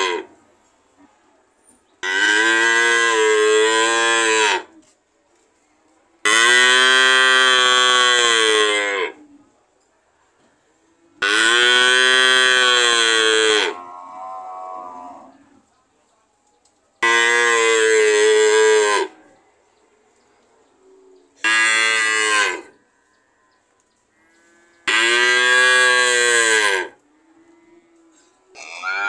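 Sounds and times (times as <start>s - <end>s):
cow mooing: 6.3s - 9.2s, 11.2s - 15.4s, 24.3s - 29.0s.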